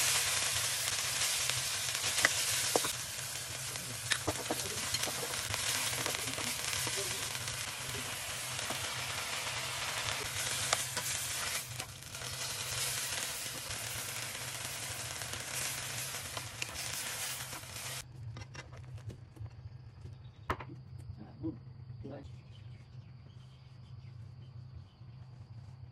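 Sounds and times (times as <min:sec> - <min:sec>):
food sizzling in a pan: 0:00.0 - 0:18.0
steady low hum: 0:17.6 - 0:25.9.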